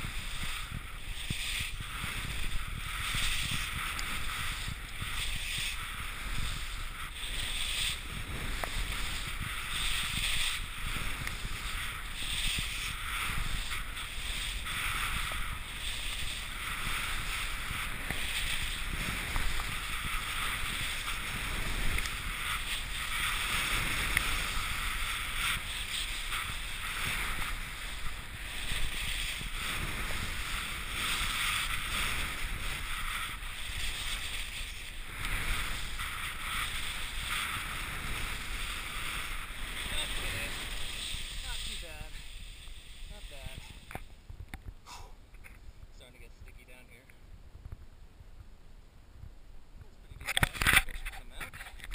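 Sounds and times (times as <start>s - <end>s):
skis scraping over snow: 0.0s - 44.1s, 50.0s - 51.9s
wind rumble: 0.0s - 51.9s
camera handling noise: 50.2s - 51.9s.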